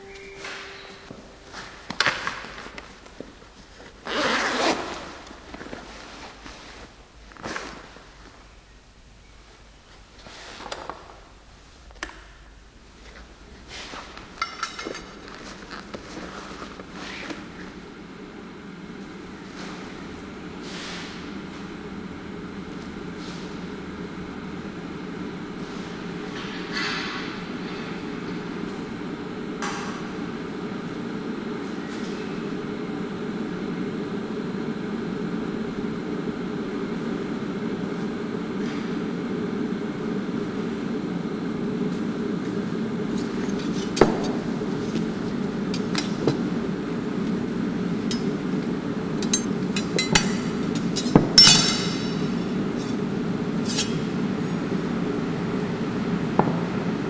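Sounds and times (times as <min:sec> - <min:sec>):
steady low hum: 0:00.0 - 0:57.0
steel knives clinking: 0:51.4 - 0:52.2.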